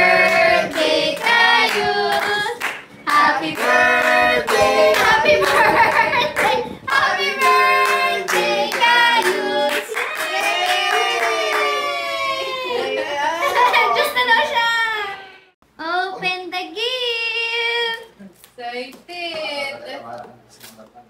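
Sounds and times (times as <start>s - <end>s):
group of people singing: 0.0s - 10.1s
hands clapping: 1.7s - 2.9s.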